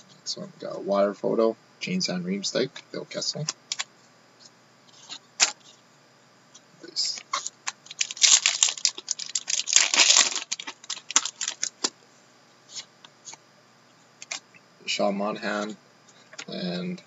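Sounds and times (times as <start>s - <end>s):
foil pack tearing: 7.2s - 11.9s.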